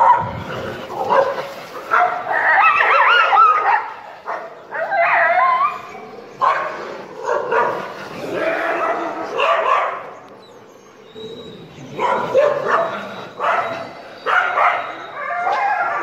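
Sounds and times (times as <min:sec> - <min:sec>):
dogs barking and yelping: 0:00.0 - 0:16.0.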